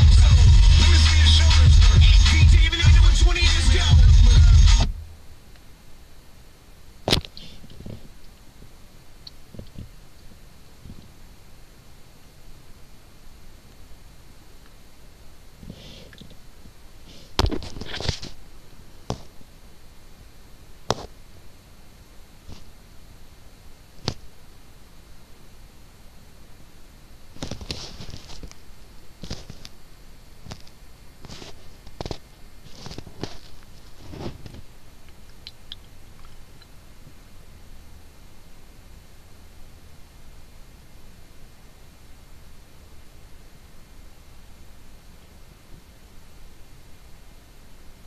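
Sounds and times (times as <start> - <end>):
faint hiss: 0.0 - 48.0
faint low hum: 0.0 - 48.0
phone handling rustle: 27.4 - 28.6, 29.2 - 29.8, 30.5 - 34.7.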